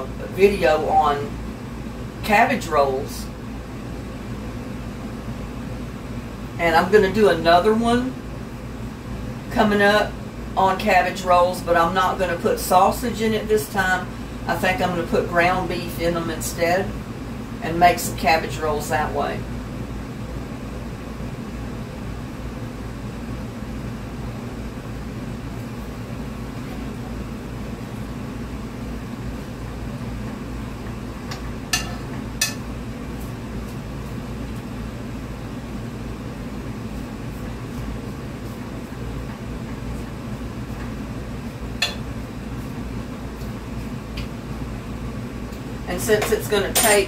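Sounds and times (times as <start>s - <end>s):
low mechanical hum: 0.0s - 47.0s.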